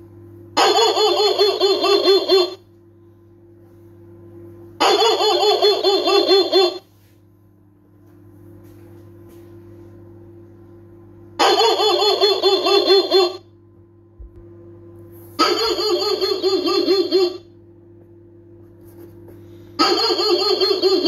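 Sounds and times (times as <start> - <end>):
electronic dog barking alarm: 0.6 - 2.7, 4.8 - 6.9, 11.4 - 13.5, 15.4 - 17.6, 19.8 - 21.0.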